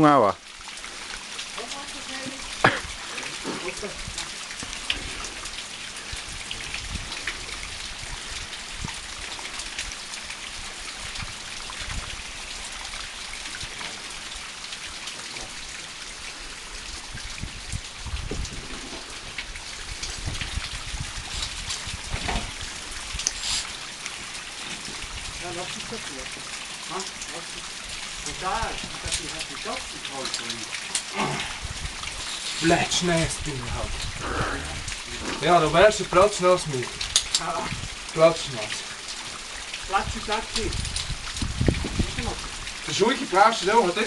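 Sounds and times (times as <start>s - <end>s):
dull low thumps: 17.0s - 23.2s, 40.7s - 42.4s.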